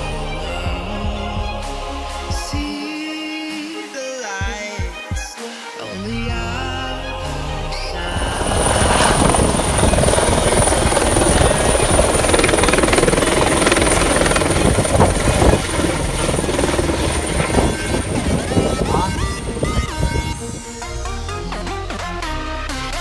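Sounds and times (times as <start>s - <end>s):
loud engine noise: 7.0s - 21.5s
high steady whine: 7.1s - 21.4s.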